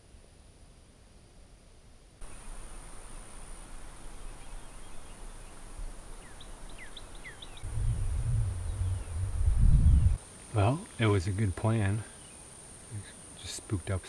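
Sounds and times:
bird chirping: 2.2 - 13.3
high insect drone: 2.2 - 14.0
low rumble on microphone: 7.4 - 10.2.

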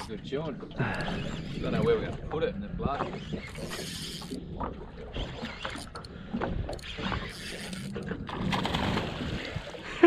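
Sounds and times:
knocks and rattles on a boat: 0.0 - 7.3.

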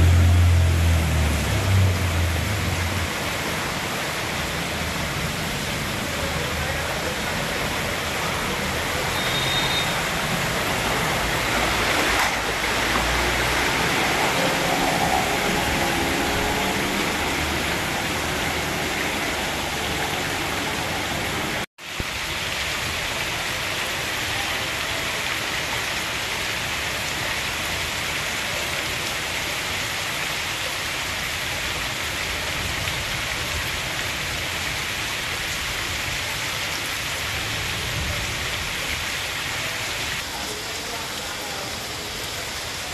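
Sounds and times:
vehicle engines rumbling: 0.0 - 21.7
heavy rain on flooded street: 0.0 - 42.9.

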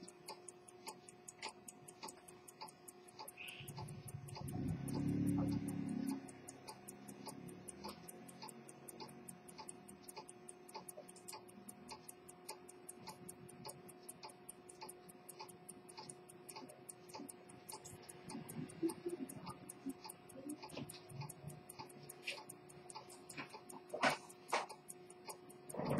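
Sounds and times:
pocket watch ticking: 0.0 - 25.9.

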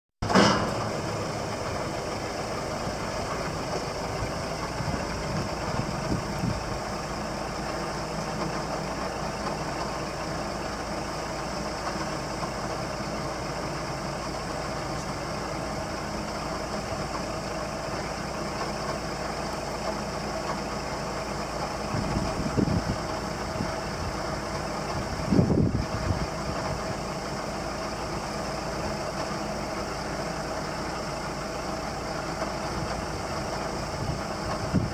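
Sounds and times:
hydraulic arm raising: 0.2 - 7.7
truck diesel engine idling: 0.2 - 34.9.

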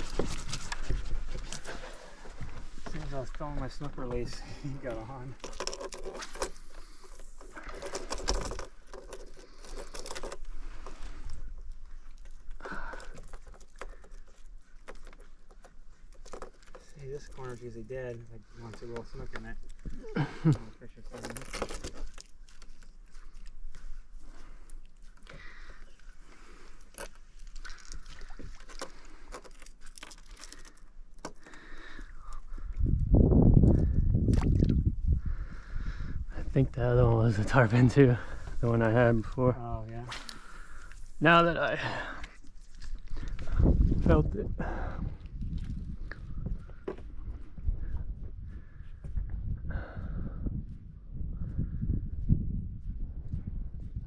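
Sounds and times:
fish net rustling and clicking: 0.0 - 2.3, 5.4 - 18.2, 21.1 - 23.9, 24.6 - 32.5.

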